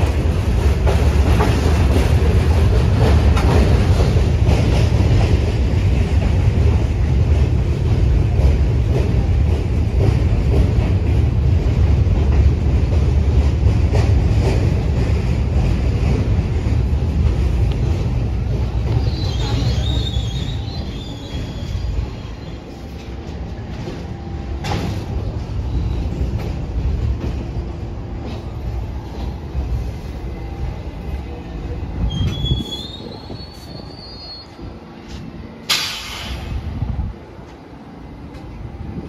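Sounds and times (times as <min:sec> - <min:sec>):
subway train rumbling: 0:00.0 - 0:39.0
high wheel squeal: 0:19.0 - 0:22.8, 0:32.1 - 0:34.6.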